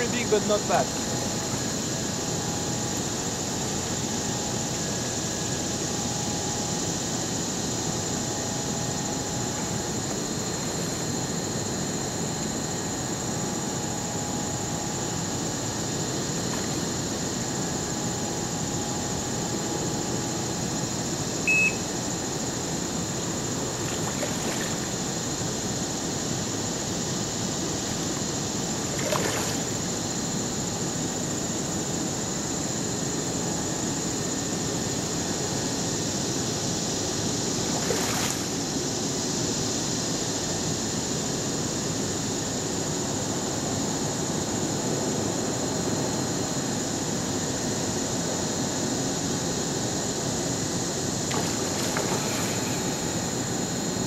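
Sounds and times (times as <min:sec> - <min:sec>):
fish splashing at water surface: 0:23.7 - 0:25.1, 0:28.9 - 0:29.8, 0:37.7 - 0:38.5, 0:51.3 - 0:53.4.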